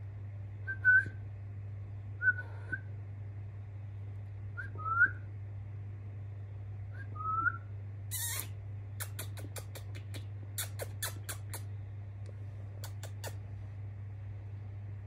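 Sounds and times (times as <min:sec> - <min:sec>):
steady low hum: 0:00.0 - 0:15.0
budgerigar chirping: 0:08.1 - 0:08.5.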